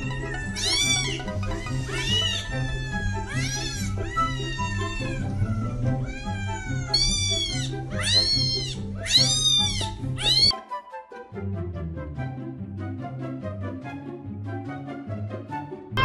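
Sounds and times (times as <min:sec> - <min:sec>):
kittens meowing: 0:00.0 - 0:10.5
background music: 0:00.0 - 0:16.0.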